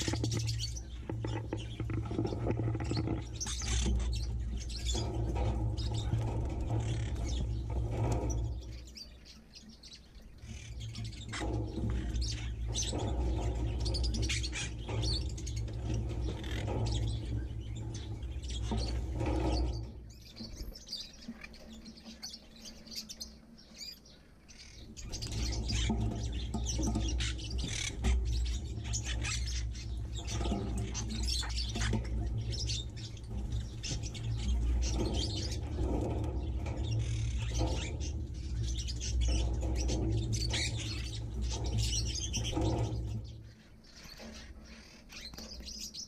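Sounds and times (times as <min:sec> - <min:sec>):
small birds chirping: 0:00.0 - 0:46.0.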